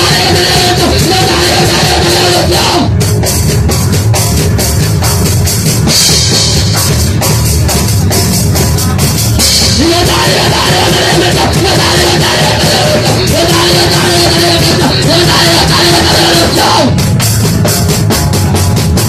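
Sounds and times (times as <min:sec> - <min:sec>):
fast drum beat: 0:00.0 - 0:19.0
punk rock band playing: 0:00.0 - 0:19.0
person shouting vocals: 0:09.8 - 0:17.0.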